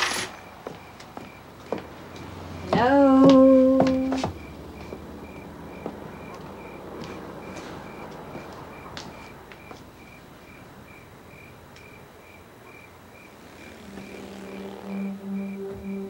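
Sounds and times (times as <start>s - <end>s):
crickets chirping: 0.0s - 16.0s
low sustained music notes: 13.4s - 16.0s.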